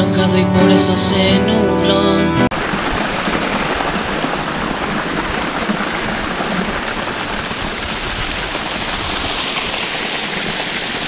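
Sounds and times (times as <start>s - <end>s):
water rushing: 2.5s - 11.0s.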